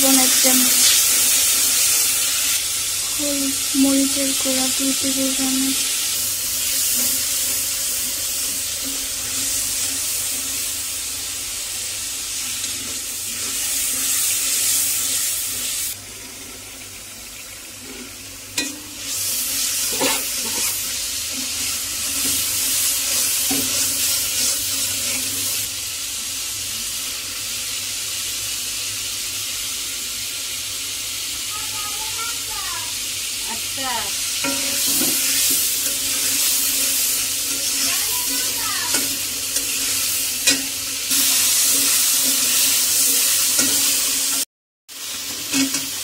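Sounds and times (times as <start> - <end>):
spices sizzling in hot oil: 0.0 - 46.0
metal spatula scraping pan: 19.7 - 22.4, 34.4 - 36.6.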